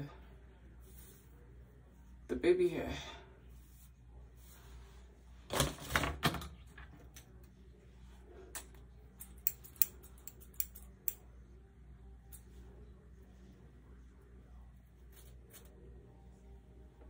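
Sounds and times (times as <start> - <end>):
small tools clicking and tapping: 8.6 - 11.2.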